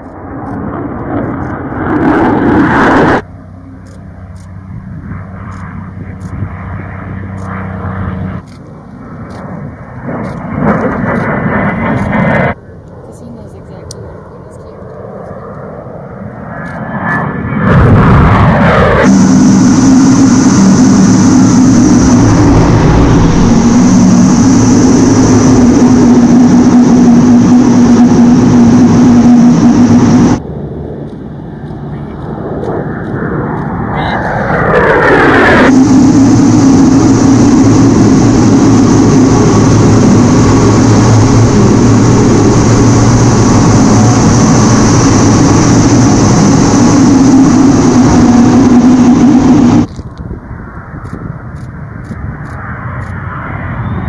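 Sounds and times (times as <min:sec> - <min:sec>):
high whine: 0:00.0 - 0:54.0
jet passing overhead: 0:00.0 - 0:54.0
low hum: 0:00.0 - 0:54.0
jet cockpit noise: 0:16.6 - 0:50.0.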